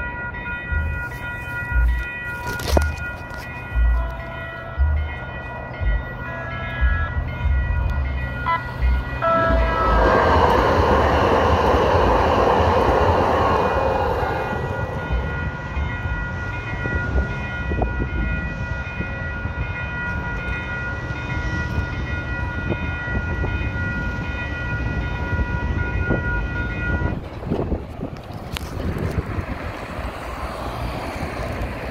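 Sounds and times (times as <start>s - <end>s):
crossing bells ringing: 0.0s - 31.9s
light-rail trolley passing: 0.0s - 31.9s
wind buffeting microphone: 6.8s - 31.9s.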